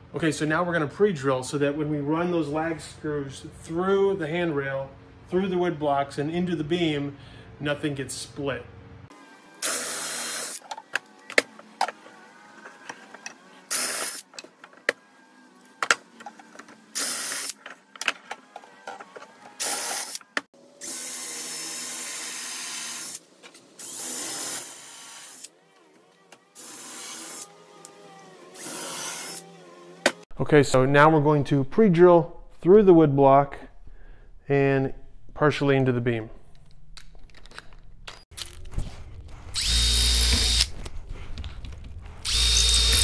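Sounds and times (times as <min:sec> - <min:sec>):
power drill drilling wood: 0:09.6 - 0:10.6, 0:23.8 - 0:25.5, 0:28.5 - 0:29.5, 0:39.6 - 0:40.7, 0:42.2 - 0:43.0.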